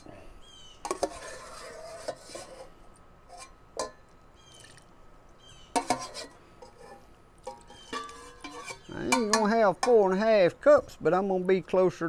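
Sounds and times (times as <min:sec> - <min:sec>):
bird chirps: 0:04.4 - 0:04.8, 0:05.4 - 0:05.8, 0:07.7 - 0:08.0.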